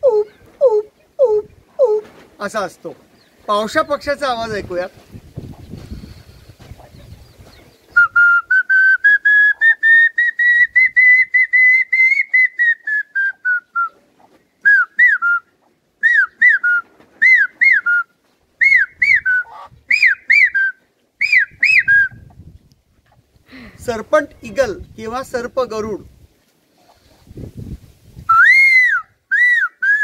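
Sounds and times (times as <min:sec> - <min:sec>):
man whistling bird call: 0:07.9 - 0:14.0, 0:14.6 - 0:22.3, 0:28.3 - 0:30.0.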